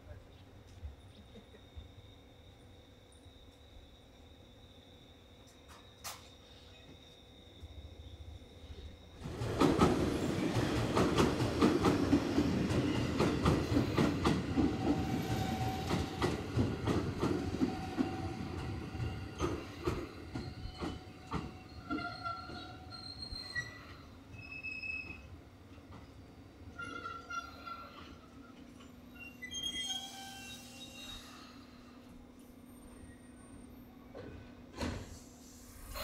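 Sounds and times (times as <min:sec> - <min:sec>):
train wheels clacking over rail joints: 0:09.2 - 0:22.7.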